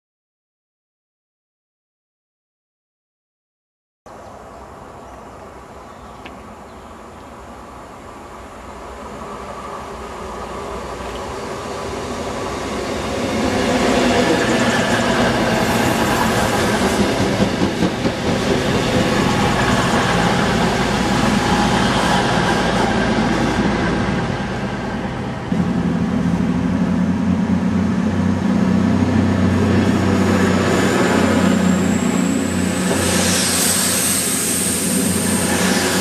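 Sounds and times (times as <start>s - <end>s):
diesel train passing at speed: 4.2s - 36.0s
wheels clickety-clack on rails: 10.6s - 24.6s.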